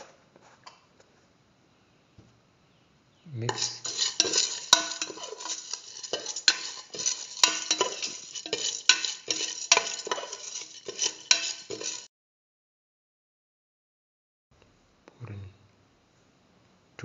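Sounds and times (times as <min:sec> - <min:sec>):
spoon scraping metal pot: 0:03.5 - 0:12.1.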